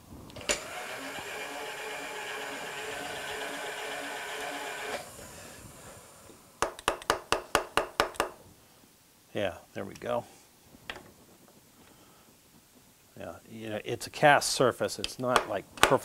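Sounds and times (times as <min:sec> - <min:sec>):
milling machine running: 0:00.4 - 0:05.2
hammer tapping metal: 0:06.6 - 0:08.4.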